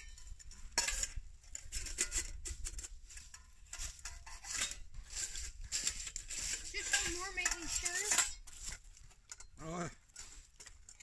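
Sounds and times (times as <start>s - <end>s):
metal cook pots scraping and clinking: 0.0s - 11.0s.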